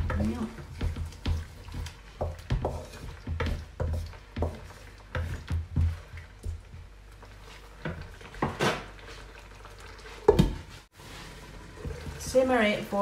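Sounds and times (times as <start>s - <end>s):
spatula scraping through broth: 0.2s - 6.3s
spatula knocking on pan: 2.2s - 6.1s.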